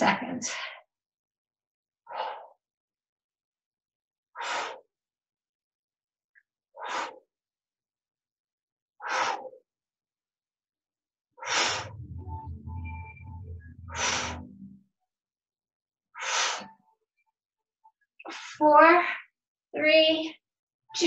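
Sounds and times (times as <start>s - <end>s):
woman breathing sharply: 11.4s - 12.3s, 13.6s - 14.6s.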